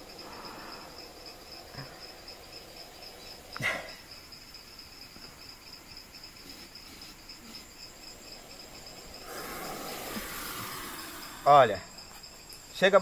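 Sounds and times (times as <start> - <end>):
snake hissing: 0.0 - 4.0, 6.1 - 12.5
insects chirring: 0.0 - 13.0.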